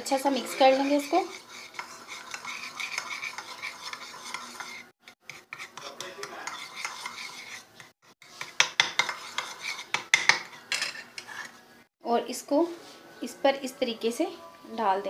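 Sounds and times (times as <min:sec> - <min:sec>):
spoon scraping and clinking container: 0:00.1 - 0:07.7, 0:08.4 - 0:11.5.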